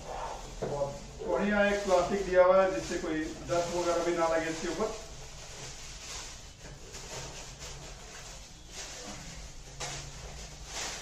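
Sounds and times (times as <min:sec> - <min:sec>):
plastic bag rustling: 0:00.0 - 0:11.0
polystyrene foam packing lifted: 0:00.2 - 0:11.0.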